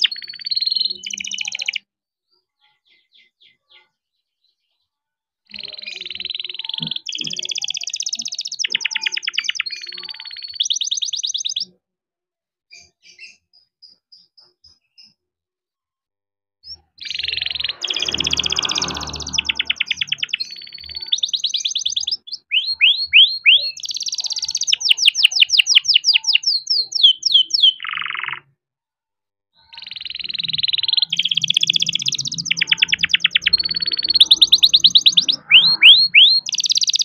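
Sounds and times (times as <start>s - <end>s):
canary singing trills: 0.0s - 1.8s, 5.5s - 11.8s, 16.6s - 28.5s, 29.6s - 37.0s.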